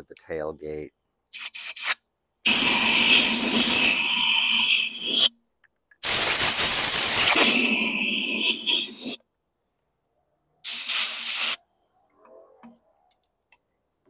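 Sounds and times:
compressed air hissing: 1.3s - 5.3s, 6.0s - 9.2s, 10.6s - 11.6s.

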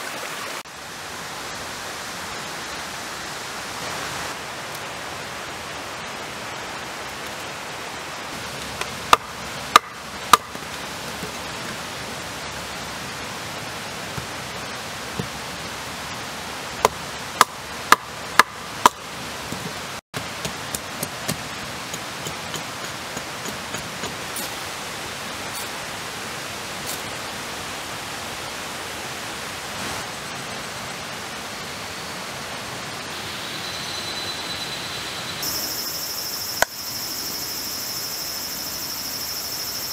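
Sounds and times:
running water rushing: 0.0s - 33.2s.

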